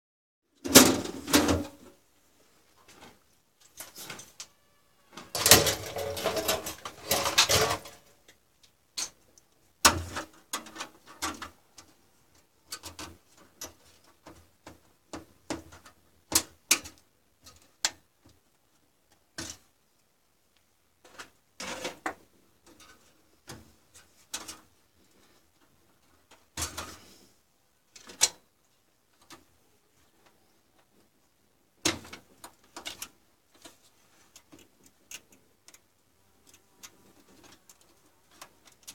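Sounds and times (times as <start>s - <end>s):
computer parts clicking and rattling: 5.3s - 8.1s, 31.9s - 38.9s.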